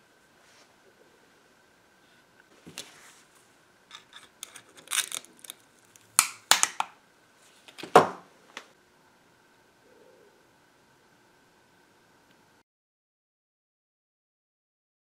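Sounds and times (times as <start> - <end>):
metal scrapes and clicks: 3.9 - 6.0.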